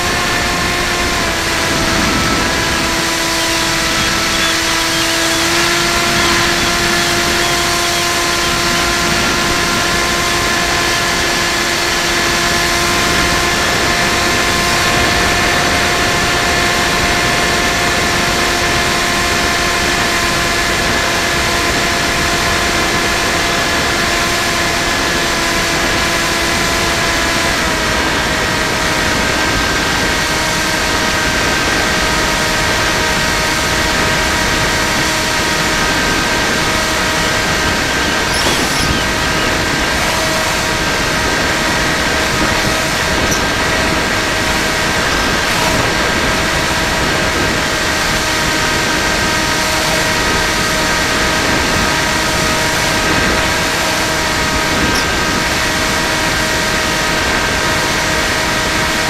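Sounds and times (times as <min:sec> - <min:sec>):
model plane motor whine: 0:00.0 - 0:59.0.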